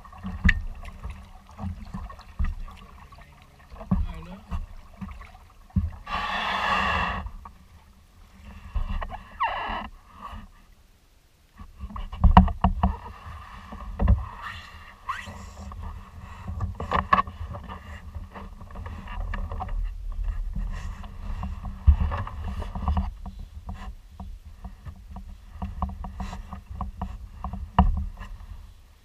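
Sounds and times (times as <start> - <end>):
kayak knocks and clicks: 0.0 - 6.1, 11.6 - 13.1, 13.7 - 14.3, 15.6 - 28.5
wind rumbling on microphone: 11.6 - 29.0.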